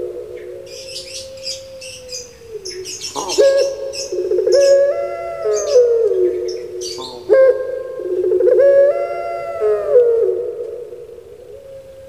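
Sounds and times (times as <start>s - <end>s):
dove cooing: 0.0s - 12.0s
small birds chirping: 0.4s - 7.4s.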